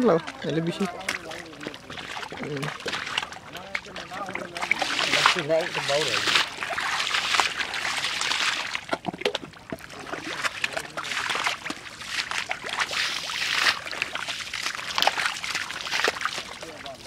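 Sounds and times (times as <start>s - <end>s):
mud sloshing and squelching: 0.0s - 17.0s
water poured from a bowl: 0.0s - 17.0s.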